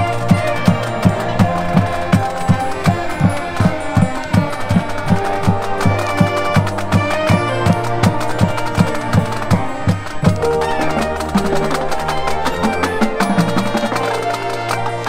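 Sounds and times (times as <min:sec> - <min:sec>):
brass playing: 0:00.0 - 0:15.0
sharp percussion clicks: 0:00.0 - 0:15.0.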